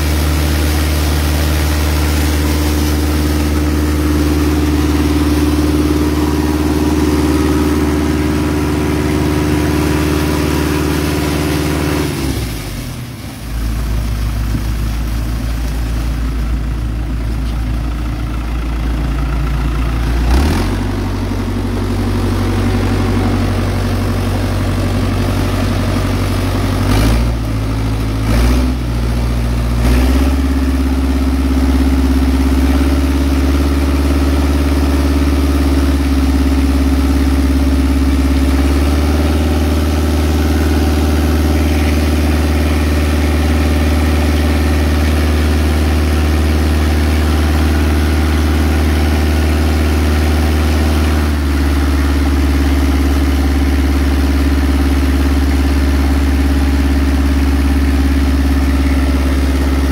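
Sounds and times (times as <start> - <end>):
high-pressure water jet hissing: 0.0 - 16.4
water pump engine running: 0.0 - 59.9.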